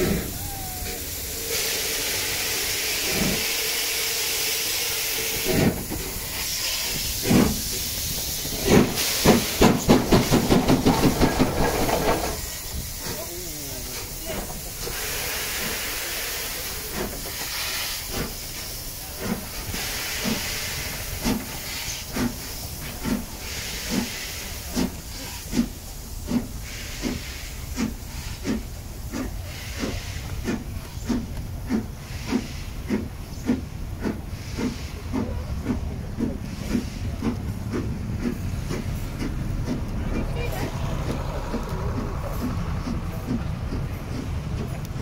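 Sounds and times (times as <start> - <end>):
steam hissing: 0.0 - 45.0
steam locomotive exhaust beats: 0.0 - 45.0
coaches rumbling past: 38.4 - 45.0.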